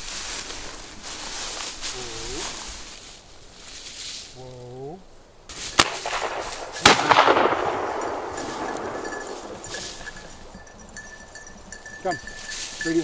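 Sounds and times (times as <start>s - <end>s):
shotgun shots with echo: 5.7s - 10.0s.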